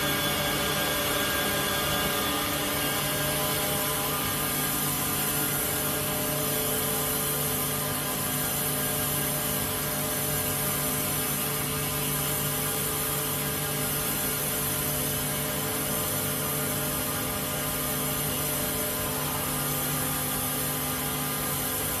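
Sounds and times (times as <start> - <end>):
knitting machine humming: 0.0 - 11.2.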